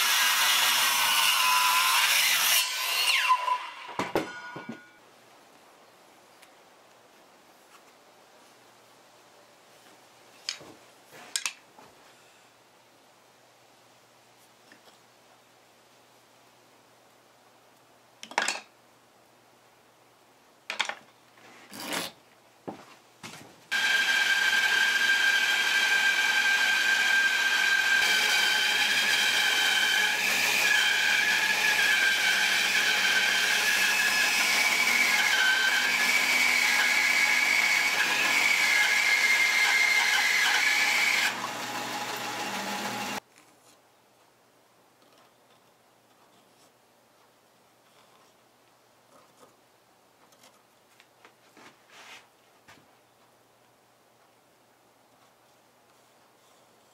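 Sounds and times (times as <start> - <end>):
band saw cutting wood: 0.0 - 4.4, 23.7 - 43.2.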